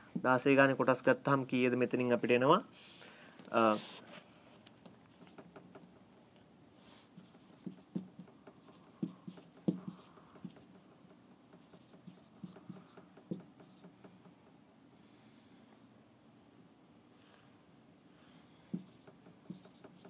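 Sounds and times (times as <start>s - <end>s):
marker scratching on whiteboard: 5.1s - 6.0s, 6.8s - 14.3s, 18.7s - 20.0s.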